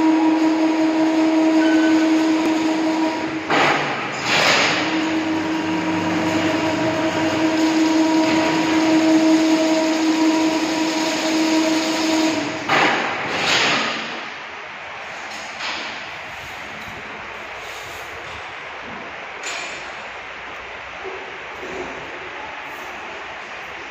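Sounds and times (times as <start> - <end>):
weaving machine humming: 0.0 - 14.0.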